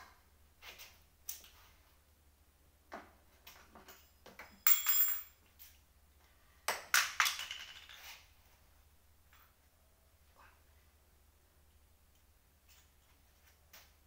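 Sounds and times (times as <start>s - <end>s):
metallic clatter with ring: 3.8s - 5.4s.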